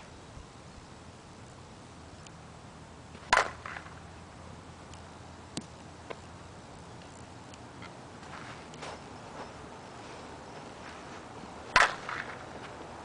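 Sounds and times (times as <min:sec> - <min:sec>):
bat striking ball: 0:03.2 - 0:04.0, 0:11.7 - 0:12.5.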